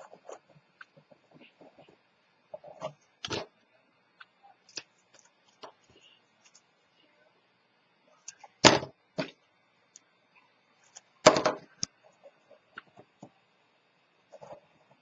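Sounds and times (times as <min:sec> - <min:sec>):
soft paper rustling: 0:00.0 - 0:03.5.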